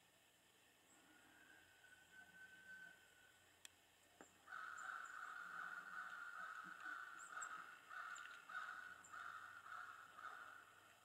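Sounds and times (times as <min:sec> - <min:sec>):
small birds chirping: 0:04.2 - 0:11.0
crows cawing: 0:04.4 - 0:10.8.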